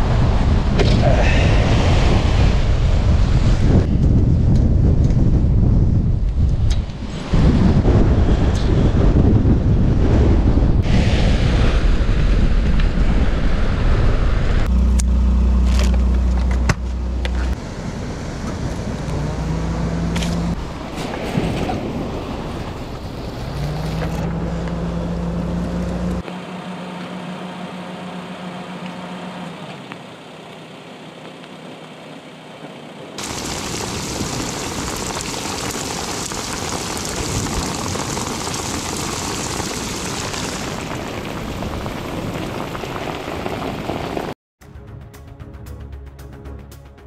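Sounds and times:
wind rushing: 0.0s - 14.7s
engine hum: 0.0s - 47.0s.

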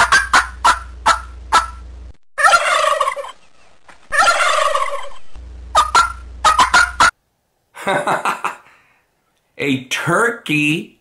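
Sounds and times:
turkeys gobbling: 0.0s - 1.8s, 2.4s - 7.2s.

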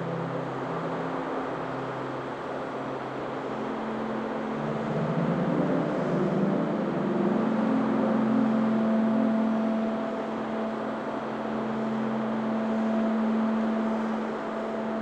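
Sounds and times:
low synth drone: 0.0s - 15.0s
soft steady hiss: 0.0s - 15.0s.

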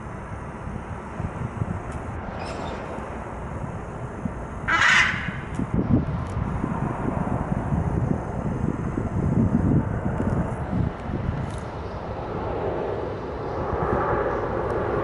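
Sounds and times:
distant engine: 0.0s - 15.0s
low uneven street rumble: 0.0s - 15.0s.

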